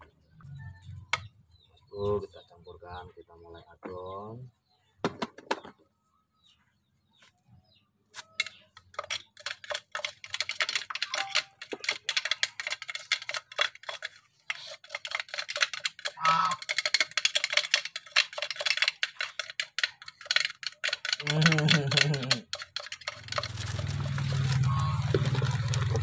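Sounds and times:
metal spoon scraping plastic cup: 8.2 - 26.0.

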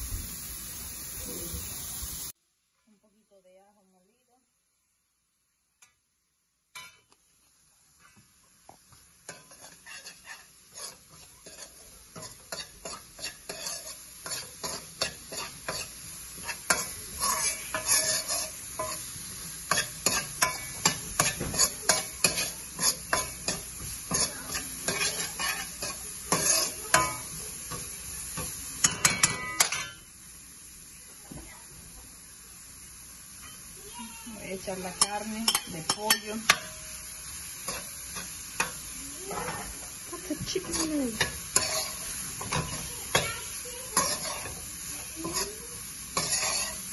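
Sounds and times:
vegetables sizzling in oil: 0.0 - 2.4, 3.8 - 46.9
spoon scraping pan: 9.0 - 30.1, 34.6 - 46.9.

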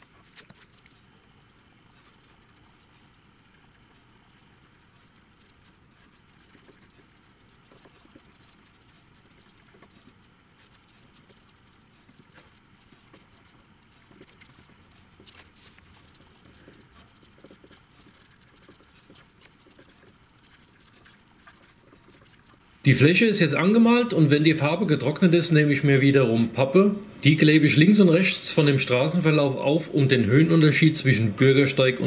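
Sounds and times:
paintbrush scratching on cardboard: 3.8 - 22.8.

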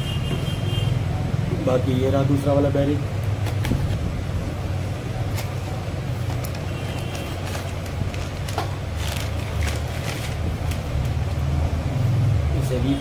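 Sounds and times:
clicks and crinkles of packaging: 5.3 - 11.3.

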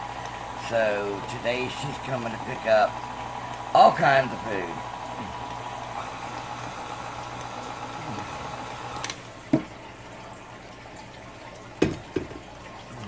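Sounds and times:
beater turning through dough: 0.0 - 9.2
stand mixer motor running: 0.0 - 9.2.

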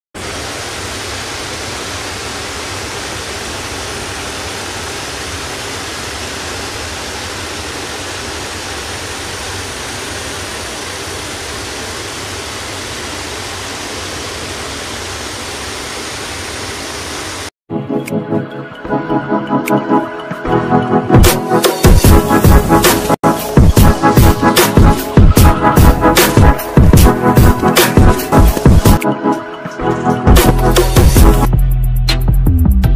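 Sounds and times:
waterfall rushing: 0.2 - 17.5.

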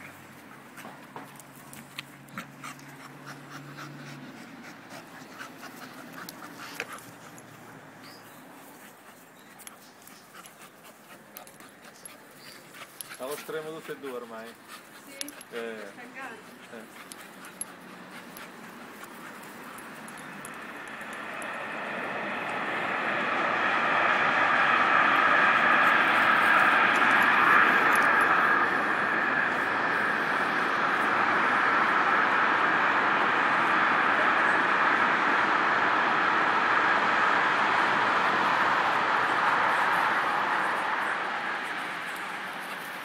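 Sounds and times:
puppy panting: 0.0 - 21.9
vehicle approaching with rushing noise: 0.0 - 43.0.

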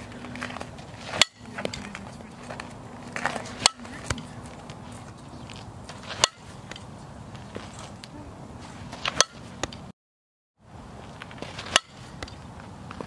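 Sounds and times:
bat cracking on softball: 11.3 - 12.4.

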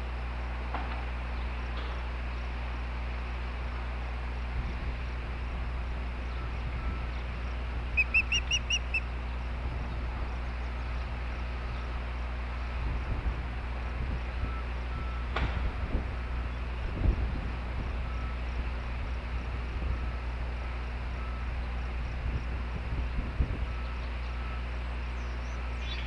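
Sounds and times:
low electrical hum: 0.0 - 26.0
bird whistled chirps: 8.0 - 9.0, 25.2 - 26.0.

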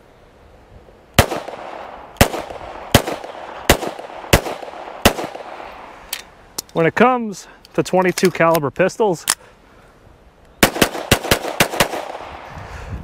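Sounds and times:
pistol shots with echo: 1.2 - 5.7, 10.6 - 12.4.

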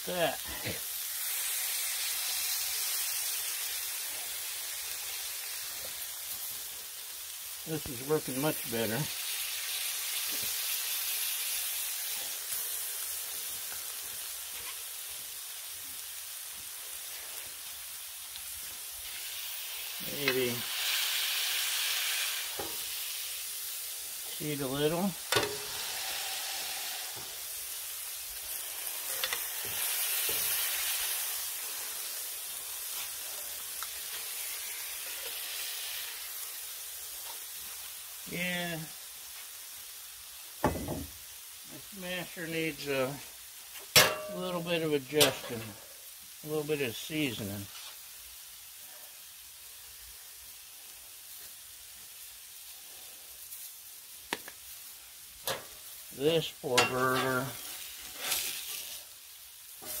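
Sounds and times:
patties sizzling on griddle: 0.0 - 60.0.

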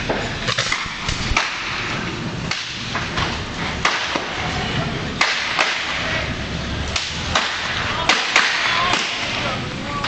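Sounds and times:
sharp cracks and knocks: 0.0 - 4.4, 5.2 - 6.1, 6.9 - 9.5
steady rushing noise: 0.0 - 10.0.

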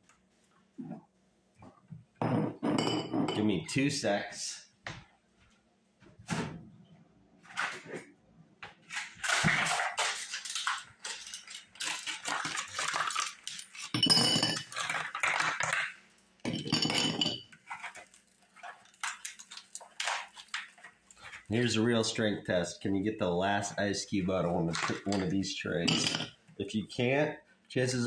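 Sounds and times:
ice cubes clattering into glass jar: 9.2 - 15.9, 25.9 - 26.3.

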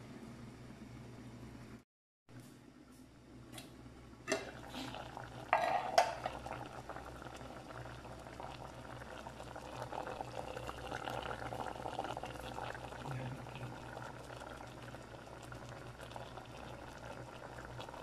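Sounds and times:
pot lid clattering: 4.3 - 4.6, 5.5 - 6.4
sauce bubbling at a boil: 4.3 - 18.0.

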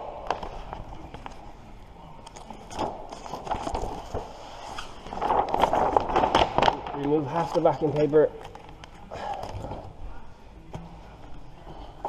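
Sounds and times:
vinyl sheet rustling and crackling: 0.2 - 10.0.

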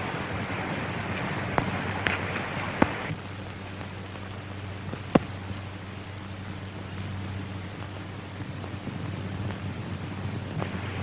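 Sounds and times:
film soundtrack hiss and hum: 0.0 - 11.0
sharp cracks: 1.4 - 5.8.

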